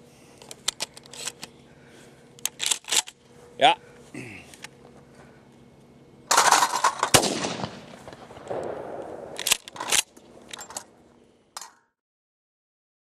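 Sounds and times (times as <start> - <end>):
shotgun blasts: 7.0 - 9.4.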